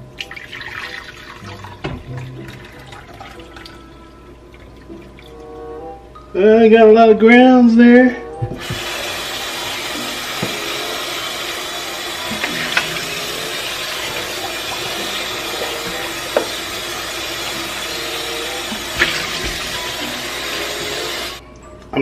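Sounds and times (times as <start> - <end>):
faucet running into steel sink: 8.6 - 21.4.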